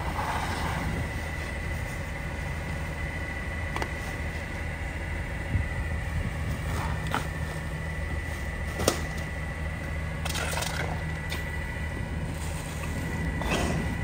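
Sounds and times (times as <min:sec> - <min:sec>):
garbage truck idling: 0:00.0 - 0:14.0.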